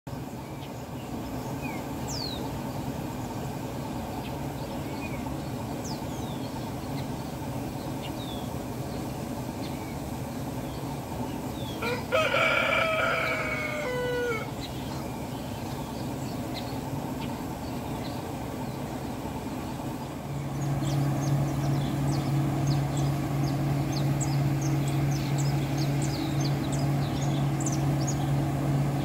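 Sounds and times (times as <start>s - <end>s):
small birds chirping: 0.1s - 29.0s
rooster crowing: 11.8s - 14.6s.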